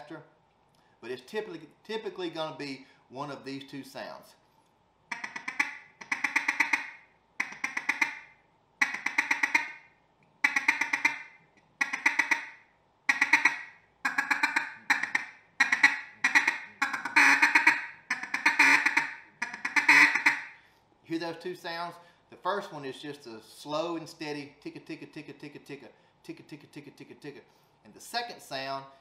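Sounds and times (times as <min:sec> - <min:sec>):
duck call chuckling: 0:05.1 - 0:09.8, 0:10.4 - 0:20.6.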